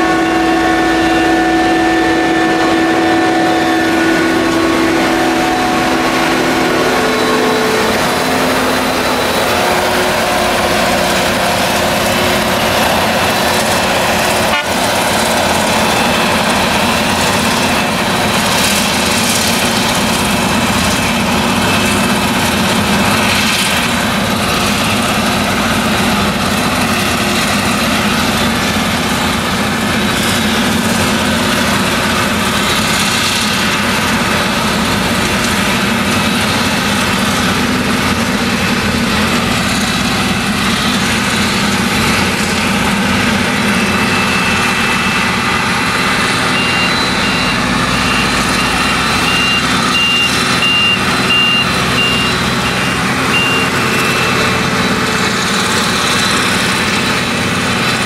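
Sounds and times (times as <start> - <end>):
harvester engine working: 0.0 - 58.0
high machine whine: 0.0 - 58.0
rapid high warning beeps: 43.7 - 54.5.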